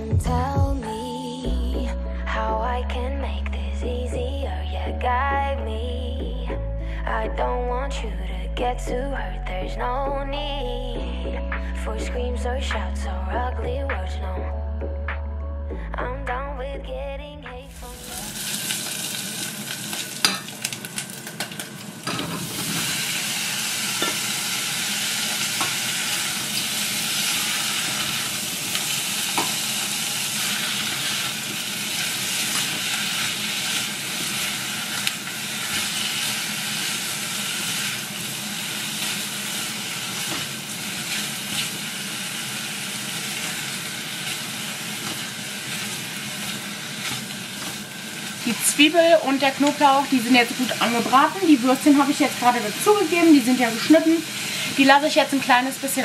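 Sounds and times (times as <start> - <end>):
sausage sizzling in pot: 17.7 - 56.0.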